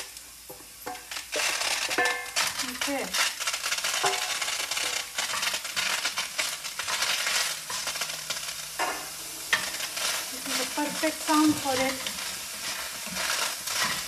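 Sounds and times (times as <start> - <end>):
green beans sizzling in skillet: 0.0 - 14.0.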